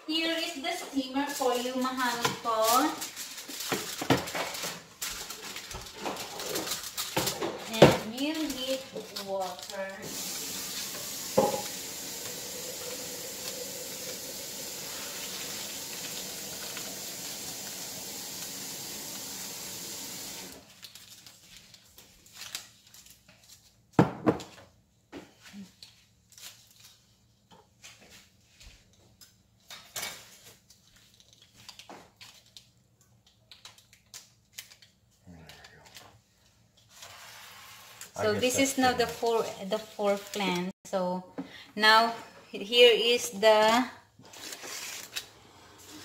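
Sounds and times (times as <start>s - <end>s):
aluminium foil crinkling: 0.1s - 19.2s, 20.4s - 24.0s, 25.5s - 28.2s, 28.8s - 40.8s, 43.2s - 46.0s
water running from tap: 10.0s - 20.6s
pitcher knocking on counter: 11.3s - 11.7s.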